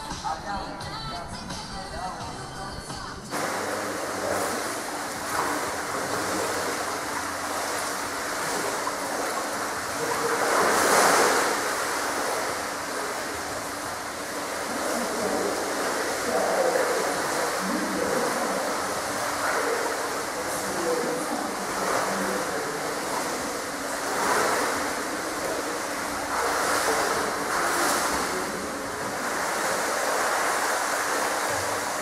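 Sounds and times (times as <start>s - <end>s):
pool water splashing: 3.2s - 32.0s.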